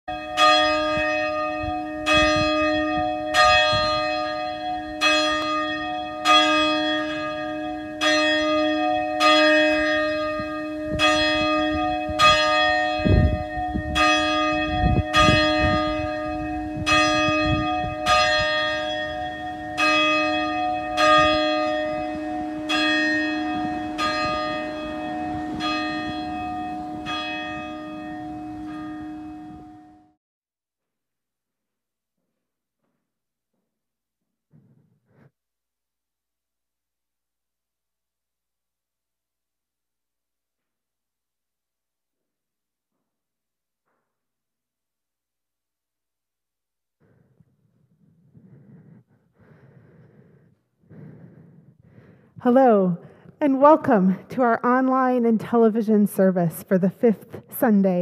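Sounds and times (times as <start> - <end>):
church bell tolling: 0.1 - 30.2.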